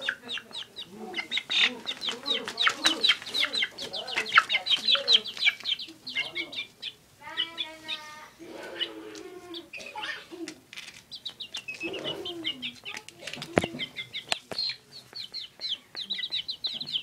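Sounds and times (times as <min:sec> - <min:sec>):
chick chirping: 0:00.0 - 0:17.0.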